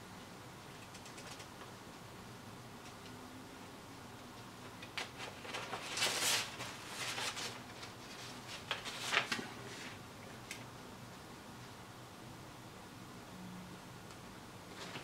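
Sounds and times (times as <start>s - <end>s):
paper sheet rustling: 5.0s - 10.0s, 14.7s - 15.0s.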